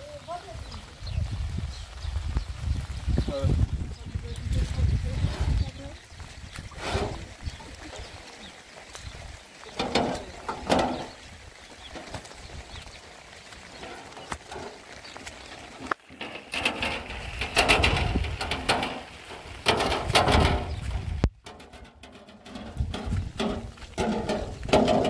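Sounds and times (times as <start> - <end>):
wheelbarrow rattling over stony ground: 0.0 - 25.0
footsteps: 11.8 - 25.0.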